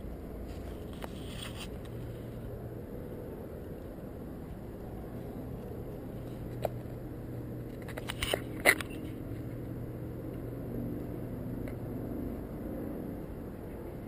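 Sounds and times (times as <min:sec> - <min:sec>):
steady low hum: 0:00.0 - 0:14.0
sharp knocks and scratches: 0:00.5 - 0:02.4.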